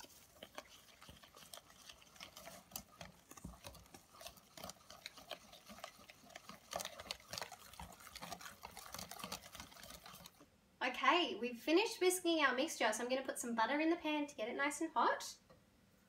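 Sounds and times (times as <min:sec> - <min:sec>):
whisk clicking in metal bowl: 0:00.0 - 0:10.4.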